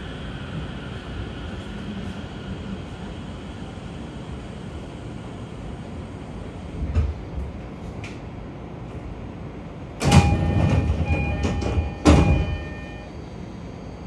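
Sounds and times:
train doors thumping shut: 0:10.0 - 0:13.0
door chime tones: 0:10.0 - 0:13.1.

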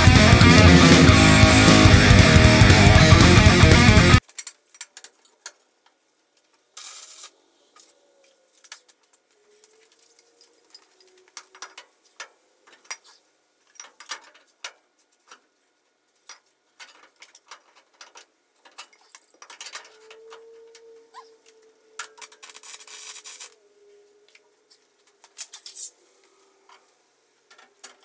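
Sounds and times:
short hiss: 0:06.8 - 0:07.3.

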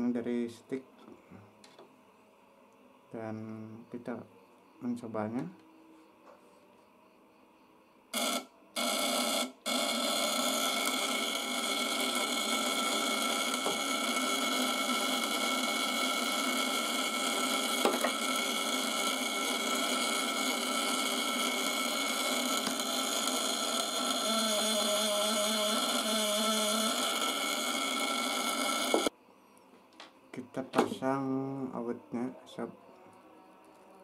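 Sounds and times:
contact breaker buzzing: 0:08.1 - 0:29.1.

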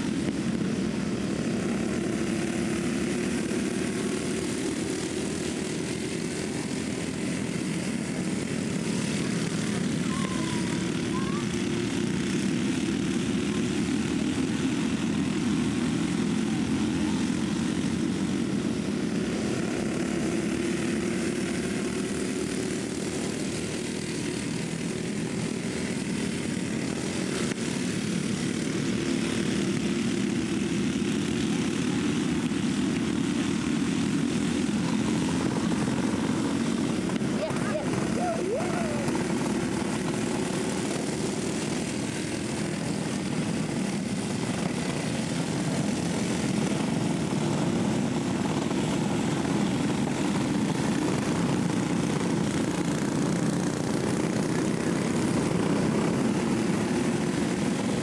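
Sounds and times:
kart engines buzzing: 0:00.0 - 0:58.0.

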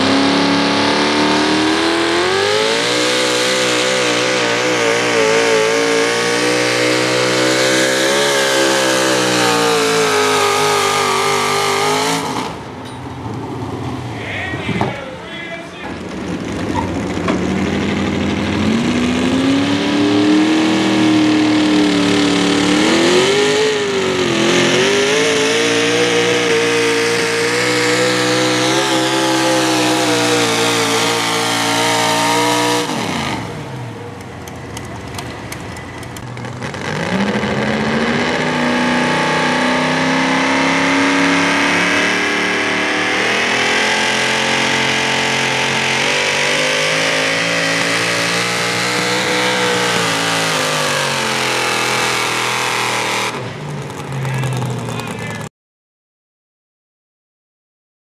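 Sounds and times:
truck engines revving high: 0:00.0 - 0:55.5.

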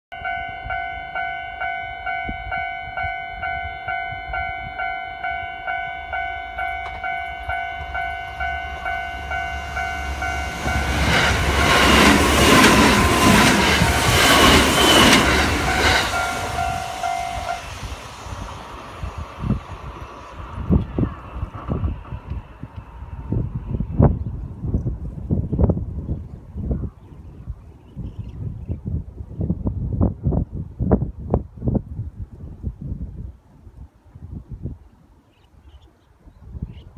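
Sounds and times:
level crossing warning bell: 0:00.1 - 0:17.8
train wheels clattering over rails: 0:10.4 - 0:17.3.

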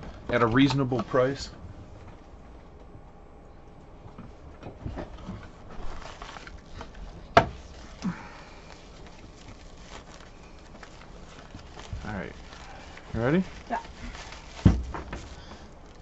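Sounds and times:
foil pouch crinkling: 0:05.7 - 0:16.0.

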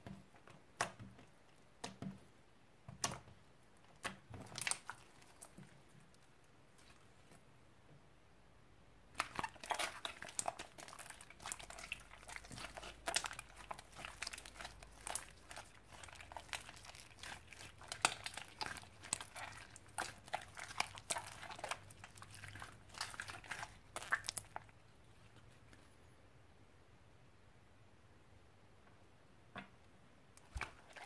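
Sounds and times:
slime squeezed with sticky clicks: 0:22.9 - 0:24.6.

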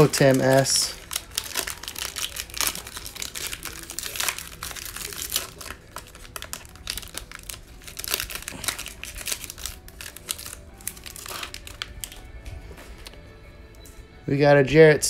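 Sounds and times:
foil wrapper crinkling and tearing: 0:00.0 - 0:12.4.

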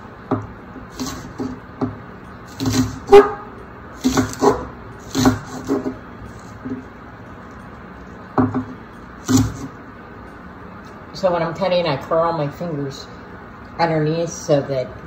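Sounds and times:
knife chopping on wooden board: 0:00.3 - 0:03.4, 0:04.0 - 0:06.0, 0:08.4 - 0:09.7.

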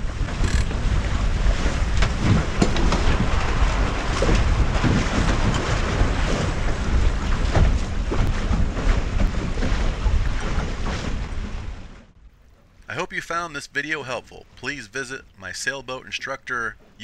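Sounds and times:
wind buffeting microphone: 0:00.0 - 0:12.1
water slapping against hull: 0:00.0 - 0:12.8
water rushing along hull: 0:00.0 - 0:17.0.

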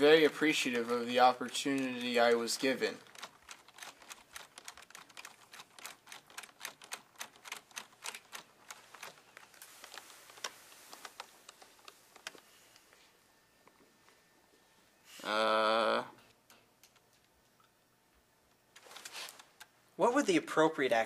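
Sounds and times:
computer keyboard typing: 0:00.2 - 0:12.4.

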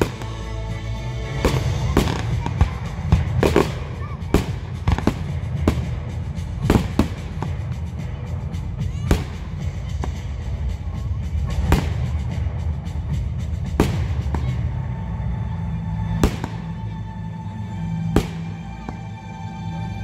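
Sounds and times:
firework bangs: 0:00.0 - 0:00.6, 0:01.2 - 0:08.3, 0:08.9 - 0:14.8, 0:16.2 - 0:16.8, 0:18.1 - 0:18.9
music playing: 0:00.0 - 0:20.0.

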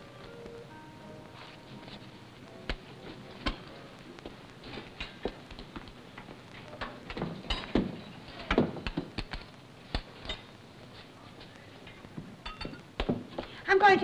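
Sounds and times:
objects knocking and thumping: 0:06.8 - 0:09.5.

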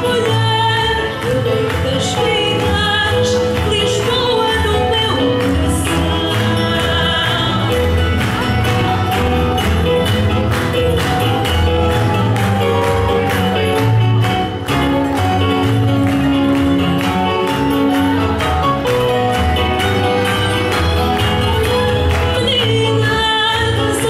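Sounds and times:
woman singing with vibrato: 0:00.0 - 0:09.3, 0:20.1 - 0:24.0
double bass: 0:00.0 - 0:24.0
plucked guitar: 0:00.0 - 0:24.0.

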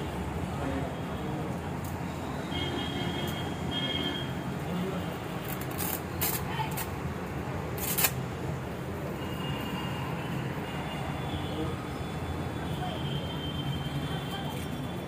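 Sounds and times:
velcro scratchy rasps: 0:05.4 - 0:06.9, 0:07.8 - 0:08.2.

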